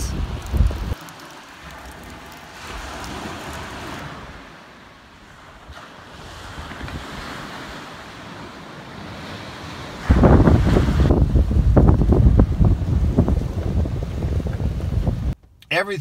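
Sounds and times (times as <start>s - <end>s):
ocean surf washing ashore: 0.0s - 15.4s
wind rumbling on microphone: 0.0s - 15.4s.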